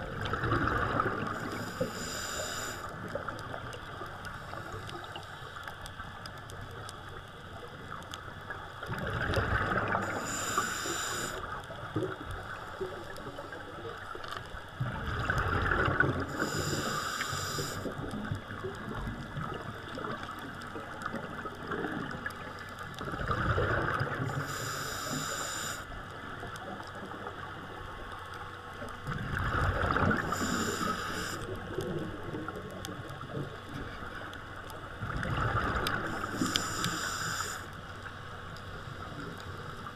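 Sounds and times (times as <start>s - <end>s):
steady underwater hiss: 0.0s - 39.9s
scuba regulator breathing: 1.2s - 3.2s, 9.9s - 11.6s, 16.3s - 18.0s, 24.3s - 25.9s, 30.2s - 31.6s, 35.9s - 37.8s.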